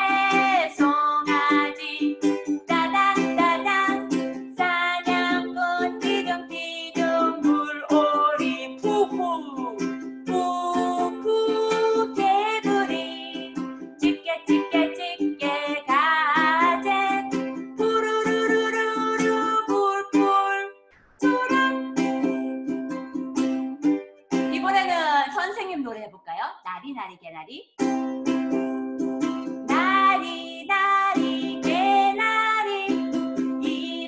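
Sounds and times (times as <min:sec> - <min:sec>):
woman singing: 0:00.0 - 0:22.7, 0:29.7 - 0:34.0
ukulele strumming chords: 0:00.0 - 0:25.0, 0:27.8 - 0:34.0.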